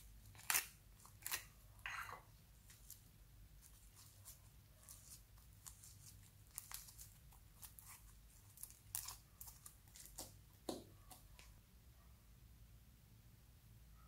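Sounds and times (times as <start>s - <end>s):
slime crackling and popping: 5.0s - 10.8s.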